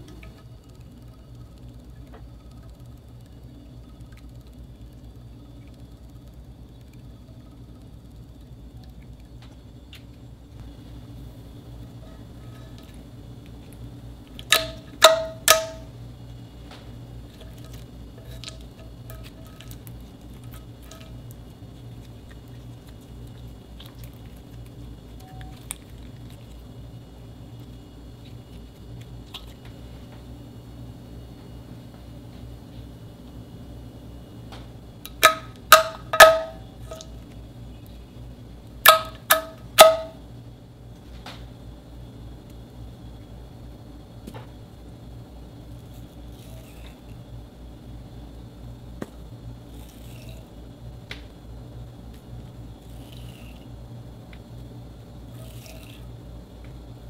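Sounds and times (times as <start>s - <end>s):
faint low hum: 0.0s - 57.0s
loud air pops with ringing: 14.4s - 16.0s, 34.6s - 37.1s, 38.8s - 40.3s.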